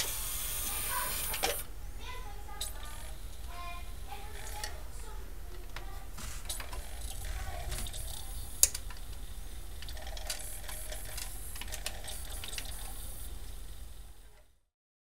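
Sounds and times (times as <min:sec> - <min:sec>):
cd player disc spinning: 0:00.0 - 0:01.7, 0:02.6 - 0:14.5
mechanical clicks and ticks: 0:04.3 - 0:04.8, 0:06.5 - 0:13.3.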